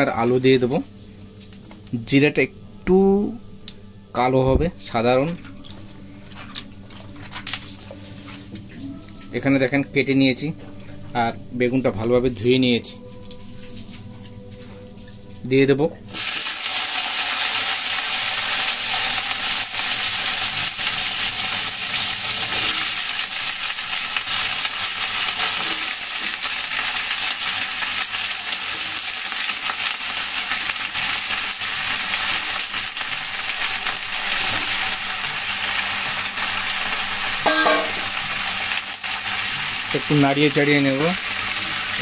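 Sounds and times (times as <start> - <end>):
vegetables sizzling in hot oil: 16.1 - 42.0.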